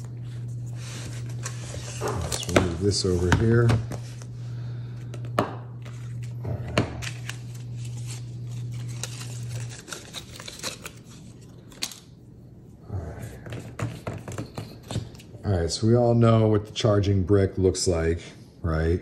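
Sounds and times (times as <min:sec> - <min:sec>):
low steady hum: 0:00.0 - 0:19.0
packaging tearing and crinkling: 0:07.0 - 0:12.1.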